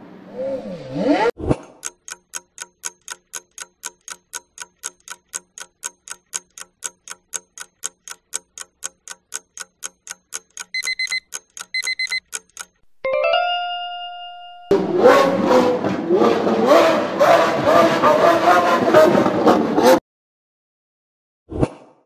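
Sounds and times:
fast clock ticking: 1.8 - 12.9
short high beeping bursts: 10.7 - 12.4.

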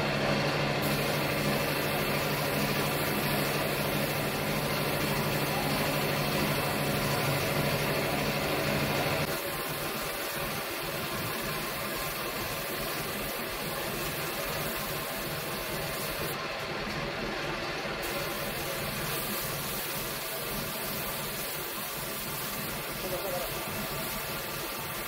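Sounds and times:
machine humming: 0.0 - 16.4.

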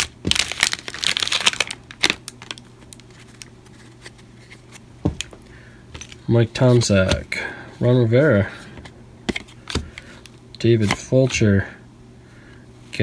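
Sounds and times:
cellophane wrapper crinkling: 0.0 - 5.4
cards rustling: 0.0 - 7.4.

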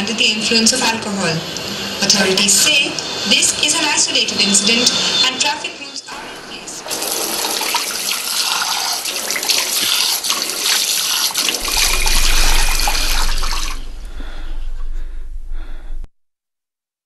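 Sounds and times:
tap water running into basin: 6.9 - 12.0
low hum: 11.6 - 16.1.

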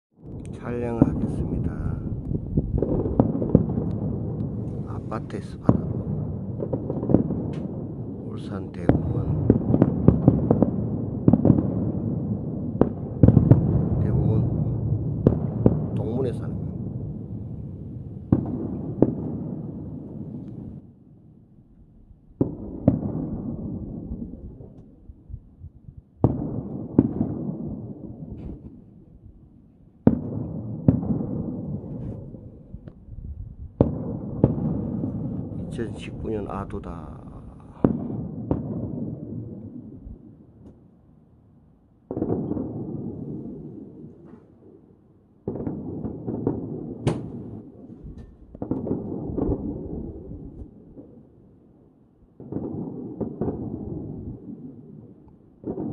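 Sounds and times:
fireworks booming: 0.2 - 20.9, 22.4 - 29.3, 30.0 - 40.9, 42.0 - 51.4, 52.3 - 55.9
low rolling echo: 0.2 - 41.0, 42.0 - 51.4
small firework bangs: 0.4 - 7.8, 8.5 - 20.8, 22.4 - 24.0, 26.2 - 28.8, 30.0 - 33.0, 33.7 - 36.8, 37.5 - 39.8, 42.0 - 44.7, 45.4 - 51.2, 52.4 - 55.9
sharp firework crack: 37.2 - 39.0, 45.5 - 49.9.

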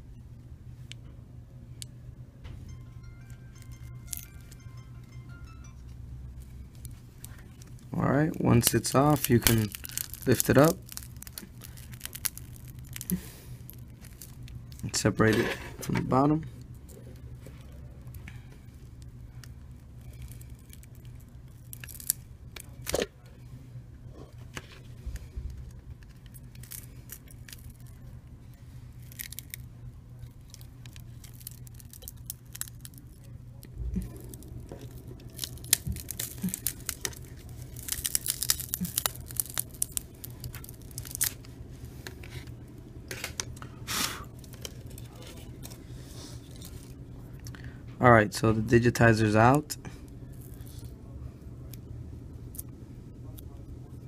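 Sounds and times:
adhesive tearing crackles: 6.8 - 15.3, 16.6 - 23.1, 24.6 - 28.0, 29.0 - 47.5.

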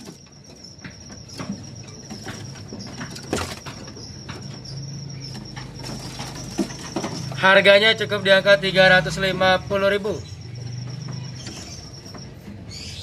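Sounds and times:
birds knocking in cage: 0.0 - 7.5.

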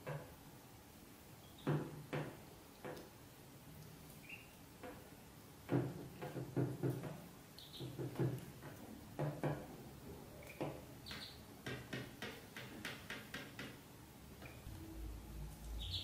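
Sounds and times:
ducklings peeping: 4.2 - 4.6, 7.6 - 8.0, 10.5 - 11.4, 15.6 - 16.0.

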